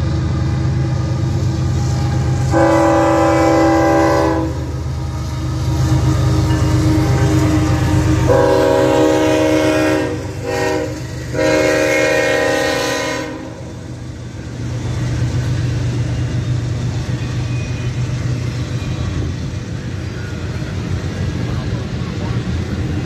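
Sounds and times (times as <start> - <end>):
freight cars rumbling past: 0.0 - 23.0
locomotive air horn blasts: 2.4 - 4.7, 7.0 - 13.7.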